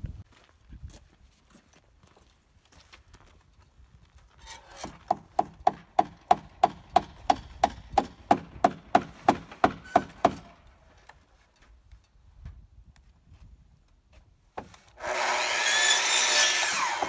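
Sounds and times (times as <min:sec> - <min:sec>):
hammer driving nail into wood: 0:04.8 - 0:10.5.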